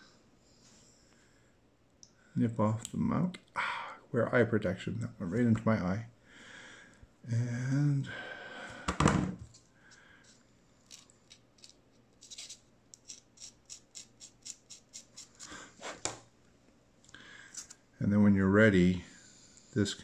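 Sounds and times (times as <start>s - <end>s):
light scratching strokes: 10.2s - 16.1s.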